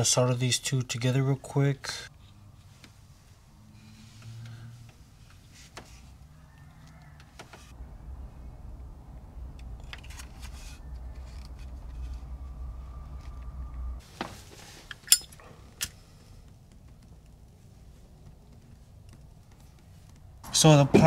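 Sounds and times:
steady low rumble: 0:07.7 - 0:14.0
wire handling rustling: 0:09.5 - 0:20.4.

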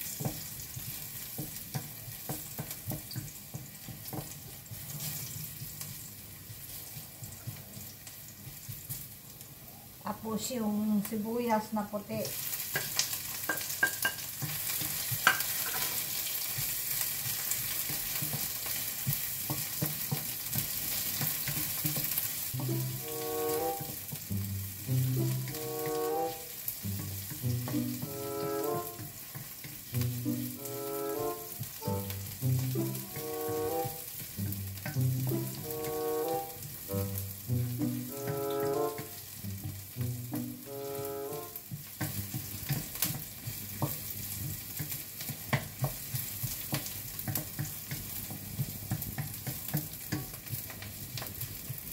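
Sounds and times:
garlic and onion sizzling in oil: 0:00.0 - 0:51.9
short musical phrase: 0:22.6 - 0:23.9, 0:24.9 - 0:26.5, 0:30.1 - 0:34.1, 0:35.0 - 0:41.6.

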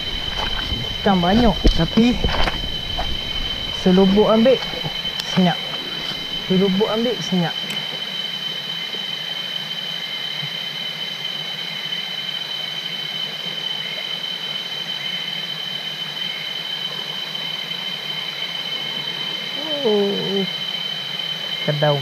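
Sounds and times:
high-pitched drone: 0:21.6 - 0:22.0.

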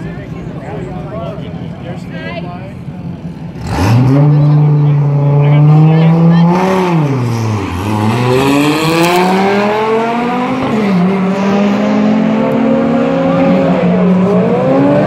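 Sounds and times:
cars launching at full throttle: 0:03.5 - 0:15.0.

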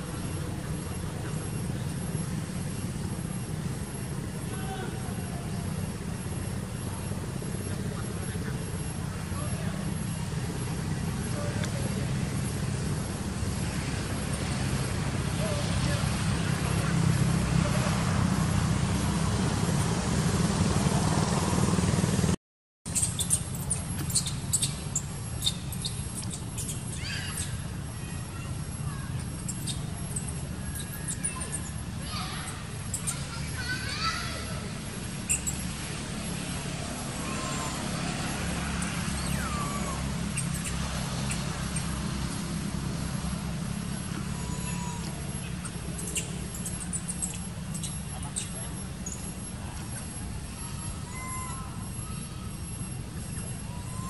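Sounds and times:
low motor-like hum: 0:00.0 - 0:54.0
low outdoor rumble: 0:00.0 - 0:54.0
faint short high calls: 0:22.9 - 0:34.7, 0:44.0 - 0:54.0.

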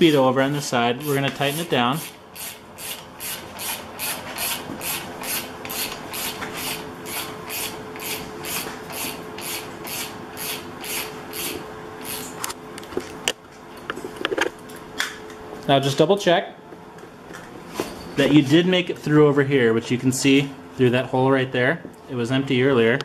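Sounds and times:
ratchet wrench clicking: 0:01.0 - 0:12.3.

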